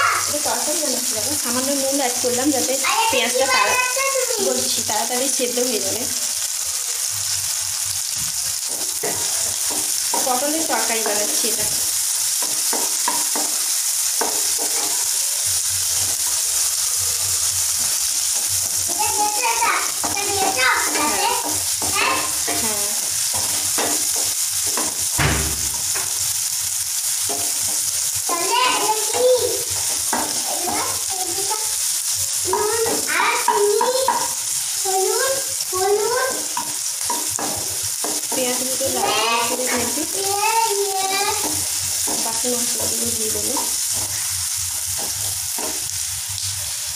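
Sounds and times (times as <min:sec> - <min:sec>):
onions sizzling in hot oil: 0:00.0 - 0:46.9
wooden spatula scraping pan: 0:08.6 - 0:15.2, 0:15.9 - 0:25.2.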